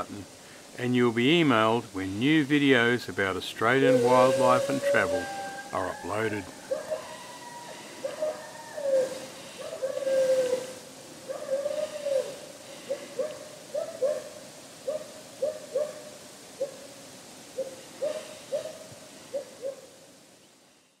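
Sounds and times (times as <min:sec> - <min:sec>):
barking owl hooting: 0:03.6 - 0:16.9, 0:17.6 - 0:20.0.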